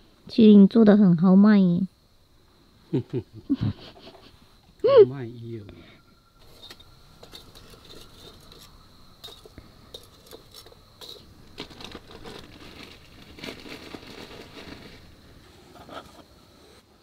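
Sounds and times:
light crinkling: 0:06.4 - 0:16.2.

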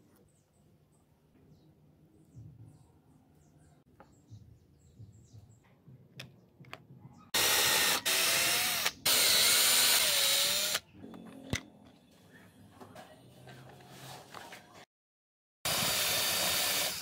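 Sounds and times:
electric drill boring plastic: 0:07.4 - 0:10.8, 0:15.7 - 0:17.0.

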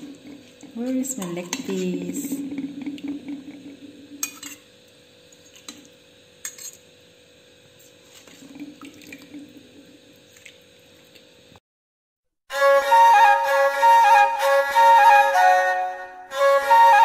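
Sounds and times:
gravy sloshing and dripping: 0:07.9 - 0:11.4.

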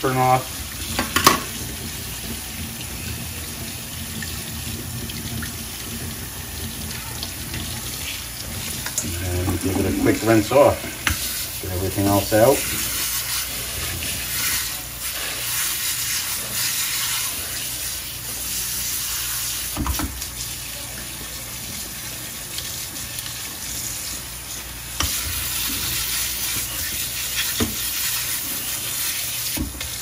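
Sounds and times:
tap water splashing in sink: 0:00.7 - 0:11.3, 0:19.7 - 0:20.3, 0:25.0 - 0:28.0, 0:29.4 - 0:30.0.

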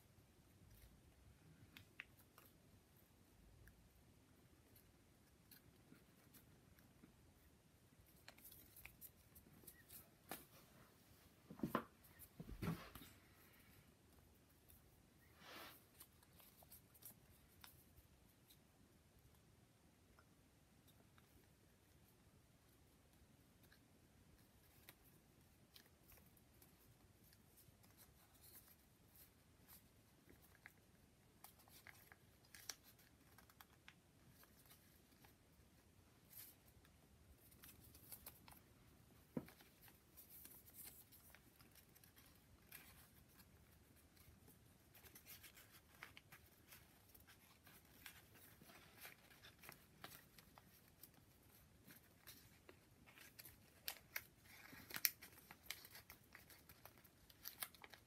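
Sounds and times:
paper rustling and crinkling: 0:36.1 - 0:58.0.

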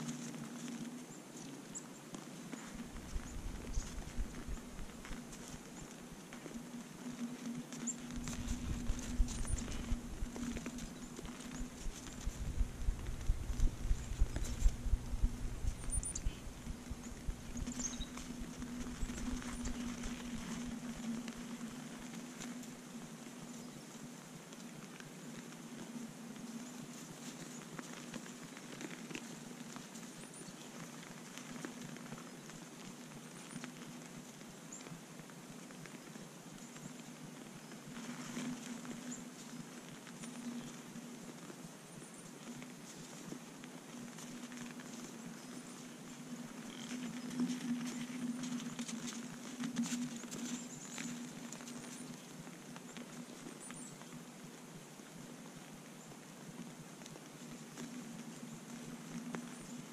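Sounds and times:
hooves crunching in snow: 0:00.0 - 0:59.9
deer stepping in crusted snow: 0:02.6 - 0:06.5, 0:07.8 - 0:21.2
steady low hum: 0:02.6 - 0:23.5
faint high chirps: 0:07.3 - 0:21.4.

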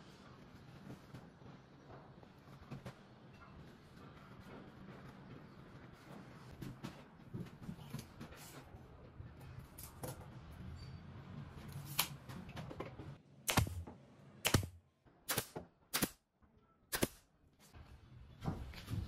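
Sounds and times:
nail gun firing into wood: 0:13.5 - 0:16.2, 0:16.9 - 0:17.2.

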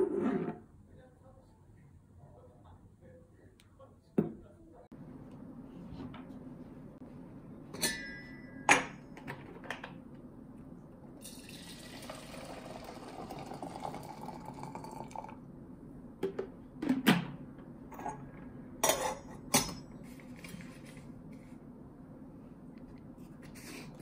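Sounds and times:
kettles and lids clinking: 0:07.8 - 0:09.3, 0:17.9 - 0:19.9
water pouring into kettle: 0:11.2 - 0:15.4.

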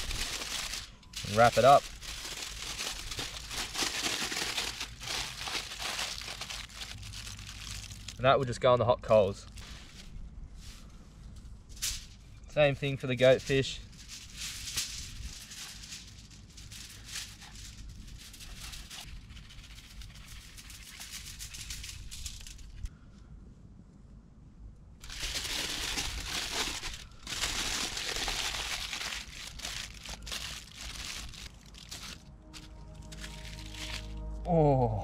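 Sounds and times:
aluminium foil crinkling: 0:00.0 - 0:08.2, 0:13.2 - 0:22.9, 0:25.0 - 0:34.2.

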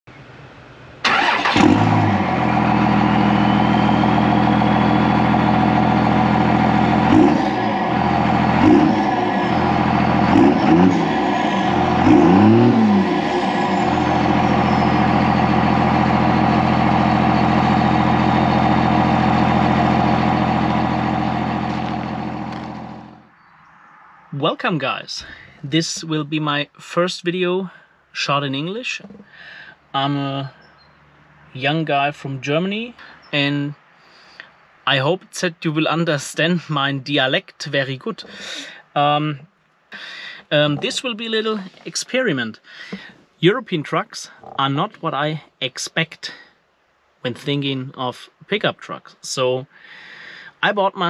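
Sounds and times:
engine revving: 0:01.0 - 0:23.3
diesel engine starting and idling: 0:01.0 - 0:23.4, 0:40.0 - 0:45.2.

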